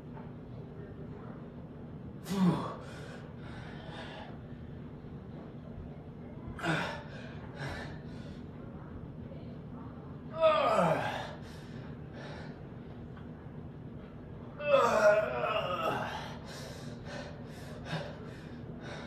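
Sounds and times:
man breathing heavily: 2.3 - 4.6, 6.6 - 8.5, 10.8 - 13.0, 15.8 - 19.0.

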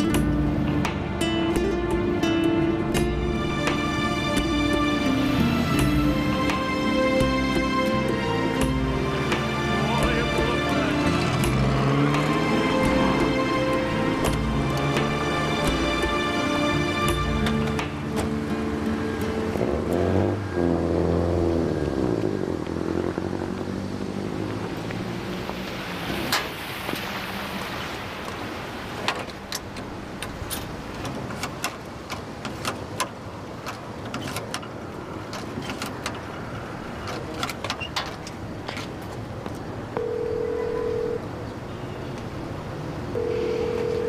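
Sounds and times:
background music: 0.0 - 22.1
telephone ringing tone: 40.0 - 41.3, 43.1 - 44.0.

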